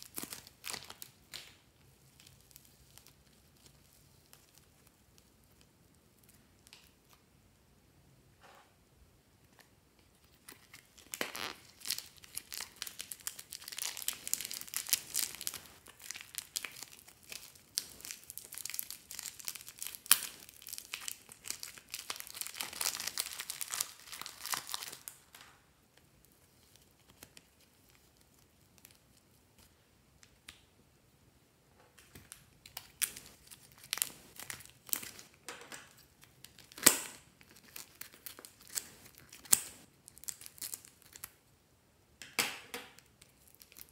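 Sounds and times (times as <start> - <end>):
plastic bags crinkling: 10.4 - 25.4
plastic sharp crackle: 10.4 - 25.5, 32.0 - 41.4.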